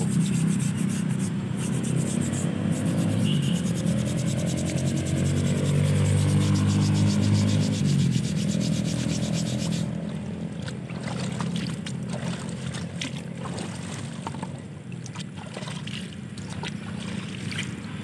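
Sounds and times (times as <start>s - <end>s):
brush scrubbing wet wood: 0.0s - 10.1s
water splashing and dripping: 3.6s - 18.0s.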